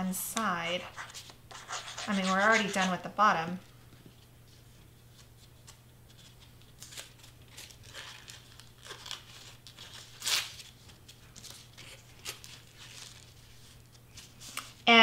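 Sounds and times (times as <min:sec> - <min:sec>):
crepe paper rustling and crinkling: 0:05.0 - 0:14.9.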